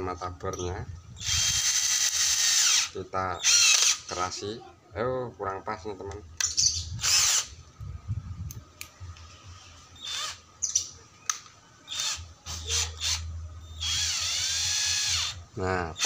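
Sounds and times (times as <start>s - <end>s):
drill motor whine: 1.2s - 4.0s, 7.0s - 7.5s, 10.0s - 10.4s, 11.9s - 15.4s.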